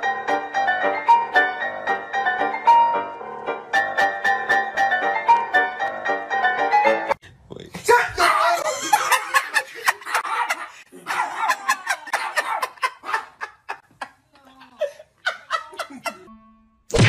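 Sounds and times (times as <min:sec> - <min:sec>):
people laughing hard: 0:08.4 - 0:16.3
people talking: 0:14.3 - 0:16.2.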